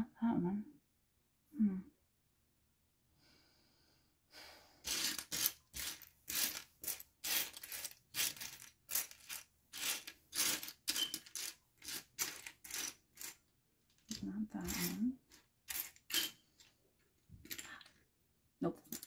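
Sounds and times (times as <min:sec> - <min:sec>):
plastic blocks clattering: 0:04.9 - 0:18.0, 0:18.8 - 0:19.0.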